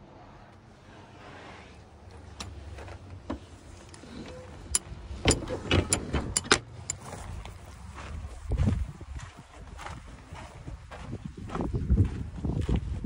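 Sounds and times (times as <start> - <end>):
knocks and clanks in trailer: 4.7 - 7.0.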